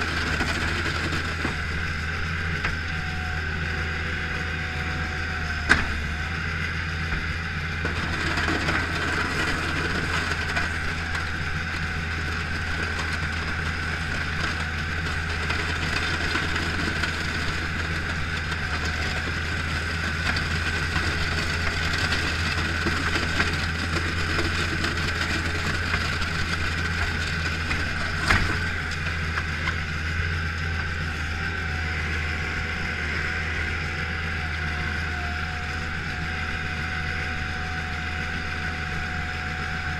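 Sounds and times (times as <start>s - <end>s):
loader engine running: 0.0s - 39.9s
plow blade pushing snow: 0.0s - 39.9s.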